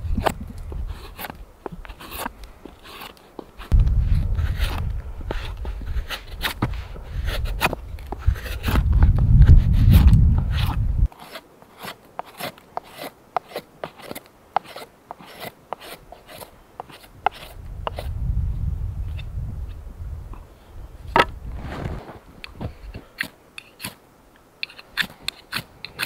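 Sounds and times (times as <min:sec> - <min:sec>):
knife shaving wood: 0:00.1 - 0:18.2, 0:21.8 - 0:24.0, 0:24.6 - 0:26.0
low rumble: 0:03.7 - 0:06.0, 0:07.9 - 0:11.1, 0:17.6 - 0:21.8.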